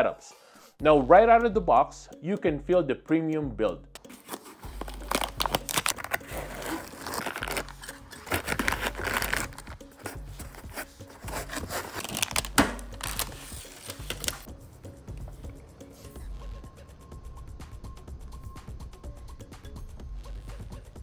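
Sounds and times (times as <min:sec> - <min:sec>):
foam and plastic bags crinkling: 0:04.1 - 0:14.5
plastic film peeling: 0:04.2 - 0:14.5.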